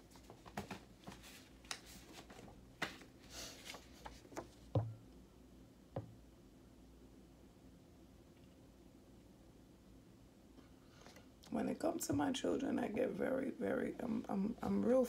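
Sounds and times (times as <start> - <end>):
cards rustling and flicking: 0.2 - 4.6
soft thumps: 4.7 - 5.0, 6.0 - 6.2.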